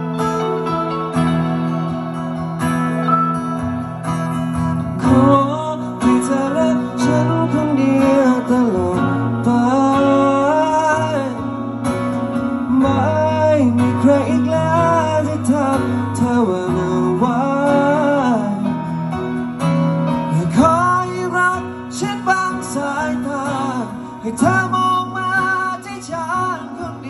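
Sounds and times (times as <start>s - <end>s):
keyboard: 0.0s - 27.0s
strummed acoustic guitar: 0.0s - 27.0s
man singing: 5.0s - 19.2s, 20.1s - 27.0s.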